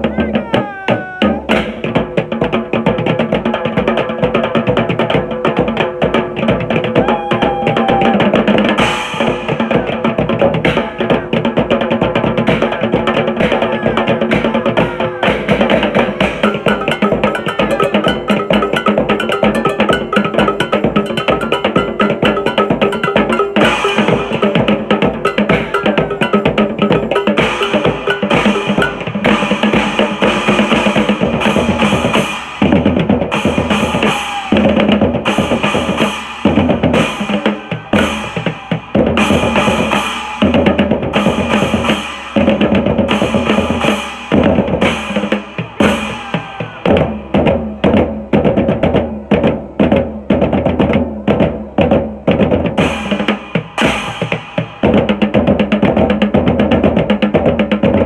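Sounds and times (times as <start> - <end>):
drumming on metal and plastic bins: 0.0 - 58.0
cymbal crashes: 35.2 - 46.2.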